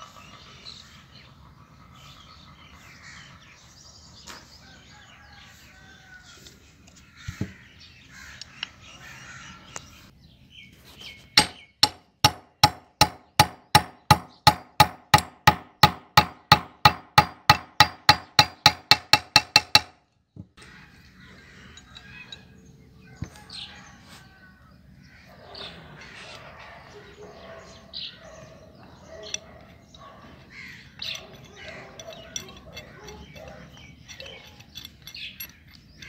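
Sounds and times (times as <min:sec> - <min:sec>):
bird calls: 0:00.0 - 0:15.6, 0:20.3 - 0:36.0
hammer tapping metal pin: 0:11.4 - 0:19.9.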